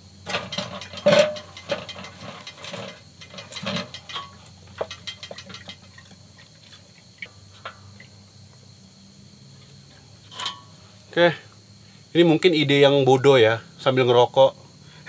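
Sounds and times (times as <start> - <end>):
metal stove clicks and knocks: 0.2 - 6.1, 10.3 - 10.7.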